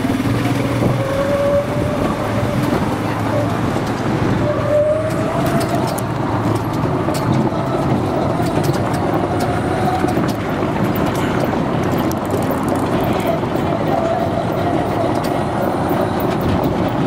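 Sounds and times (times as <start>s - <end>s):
golf cart rumble: 0.0s - 17.0s
small clicks and rattles: 5.1s - 17.0s.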